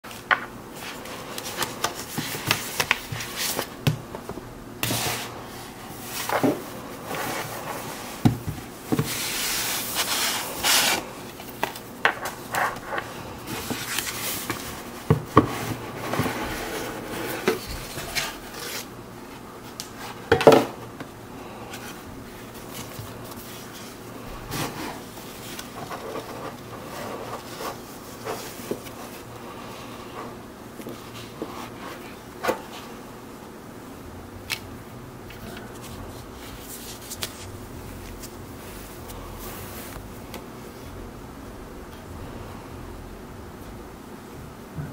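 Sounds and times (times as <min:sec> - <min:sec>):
cardboard box scraping and rubbing: 0:15.4 - 0:18.9.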